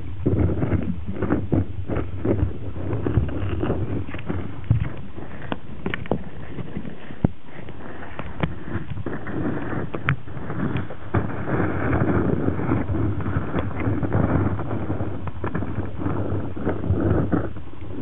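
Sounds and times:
sharp clicks and knocks: 0.2 - 7.4.

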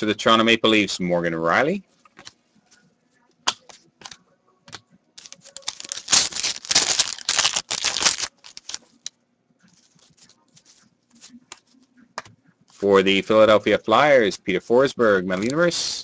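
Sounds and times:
foil wrapper crinkling and ripping: 5.2 - 9.1.

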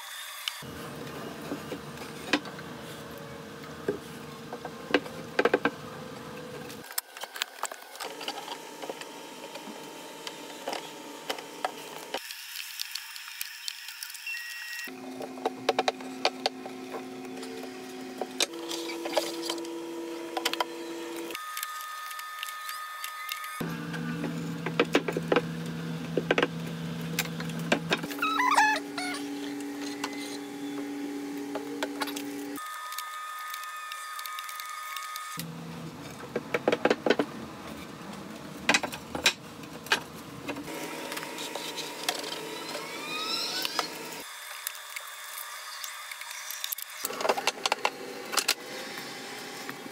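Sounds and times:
mechanical hum: 0.0 - 49.9
faint rising squeaks: 28.0 - 30.9, 41.6 - 44.2.

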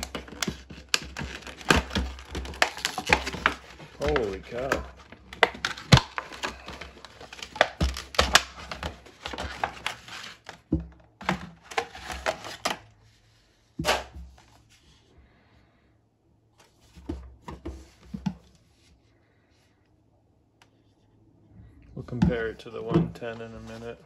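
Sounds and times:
plastic packaging crackling: 0.0 - 10.6.

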